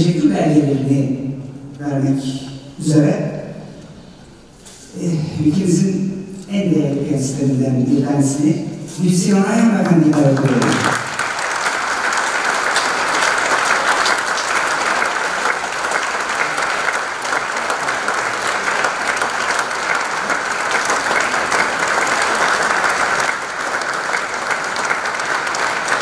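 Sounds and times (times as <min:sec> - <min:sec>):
audience applauding: 0:09.8 - 0:26.0.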